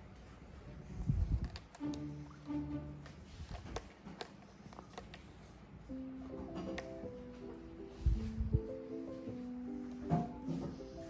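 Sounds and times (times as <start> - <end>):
music with held notes: 1.8 - 3.3, 5.9 - 11.0.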